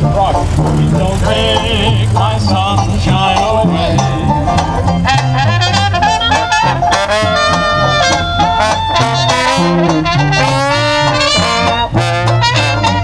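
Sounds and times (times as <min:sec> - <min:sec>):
jazz band playing: 0:00.0 - 0:13.0
tuba bass line: 0:00.0 - 0:13.0
trombone melody: 0:03.2 - 0:13.0.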